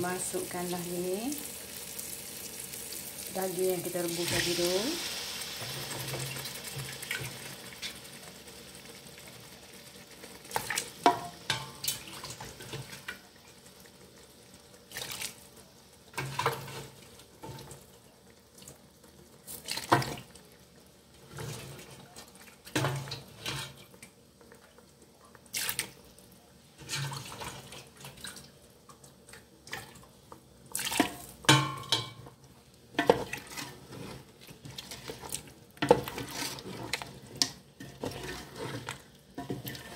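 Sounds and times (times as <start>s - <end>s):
spatula scraping pot of curry: 33.1s - 39.9s.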